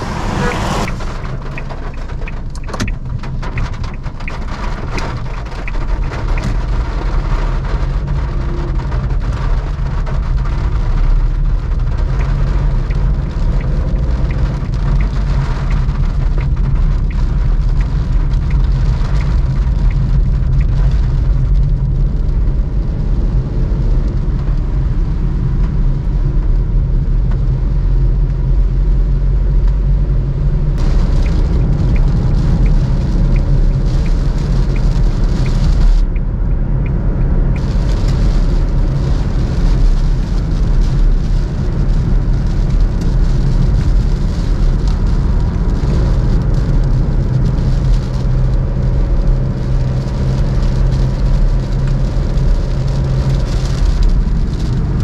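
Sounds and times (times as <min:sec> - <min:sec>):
tyres hissing on wet road: 0:00.0 - 0:02.2, 0:30.8 - 0:36.0, 0:37.5 - 0:55.0
car engine droning: 0:00.0 - 0:55.0
light regular ticks: 0:11.6 - 0:21.0, 0:30.8 - 0:37.0.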